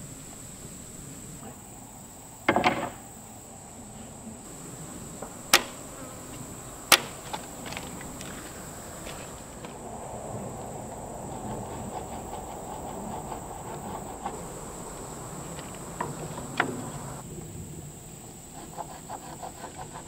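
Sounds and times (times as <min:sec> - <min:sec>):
insects droning: 0:00.0 - 0:20.0
gas torch hissing: 0:04.4 - 0:17.3
sharp ticks: 0:05.5 - 0:05.8.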